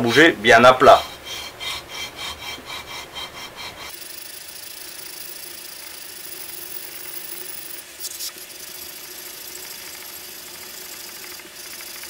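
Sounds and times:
metal scraping on abrasive paper: 0:00.0 - 0:05.0.

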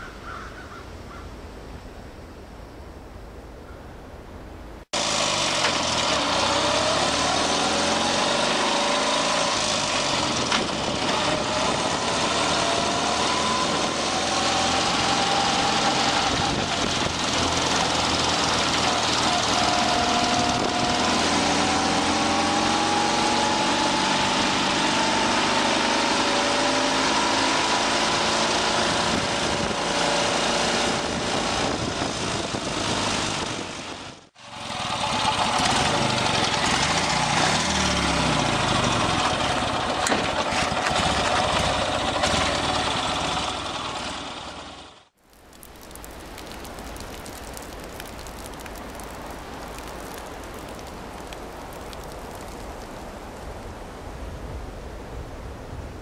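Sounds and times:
vehicle engine running: 0:05.0 - 0:23.4, 0:31.7 - 0:45.1.

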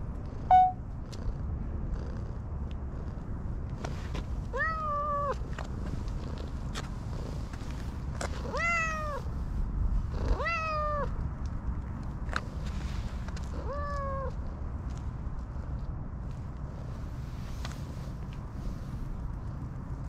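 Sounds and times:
cat meowing: 0:04.5 - 0:05.4, 0:08.5 - 0:09.2, 0:10.3 - 0:11.1, 0:13.6 - 0:14.3.

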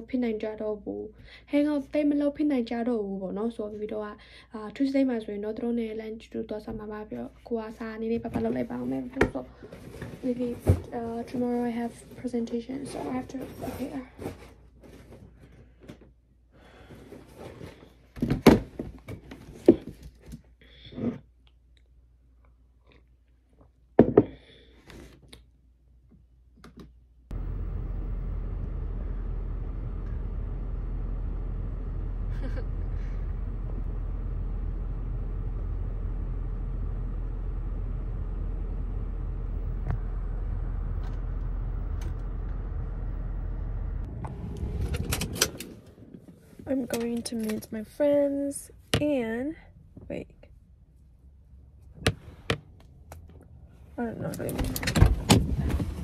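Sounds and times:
car engine rumbling: 0:27.3 - 0:48.2.

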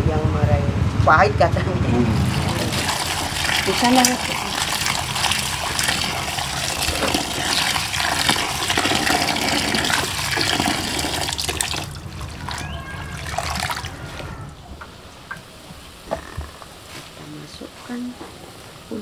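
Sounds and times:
small water splashes: 0:02.1 - 0:14.3
tap water pouring into metal pot: 0:02.2 - 0:13.9.

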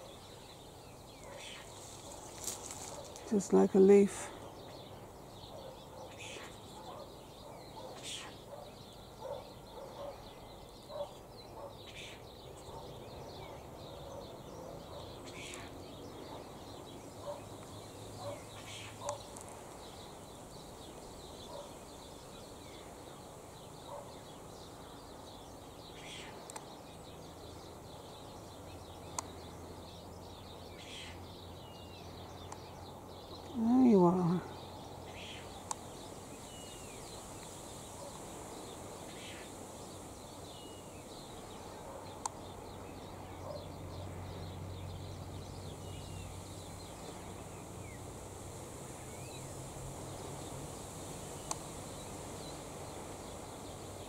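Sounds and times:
faint bird chirps: 0:00.0 - 0:26.9
low background hiss: 0:00.0 - 0:54.0.

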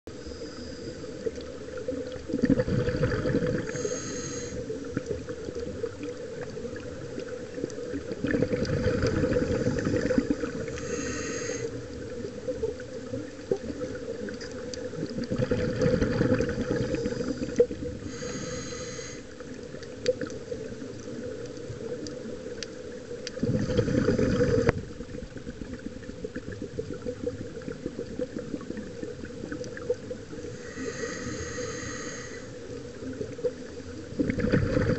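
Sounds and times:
regulator inhale hiss: 0:00.1 - 0:01.5, 0:03.5 - 0:04.8, 0:09.2 - 0:12.0, 0:16.8 - 0:19.4, 0:30.4 - 0:32.8
exhaled bubbles rumbling underwater: 0:00.1 - 0:34.9.

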